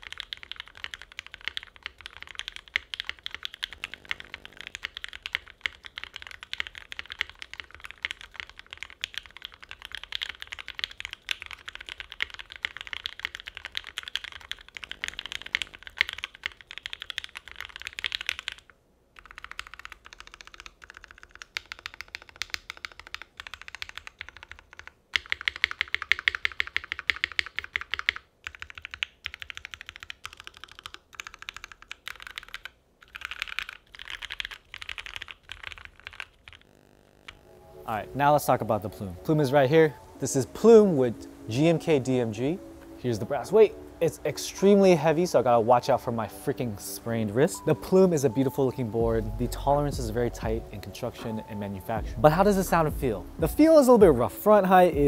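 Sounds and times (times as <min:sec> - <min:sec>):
mechanical keyboard typing: 0:00.0 - 0:36.7.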